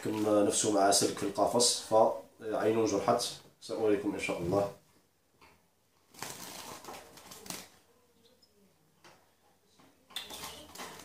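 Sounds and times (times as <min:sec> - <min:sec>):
bird wings fluttering: 0:06.1 - 0:07.8.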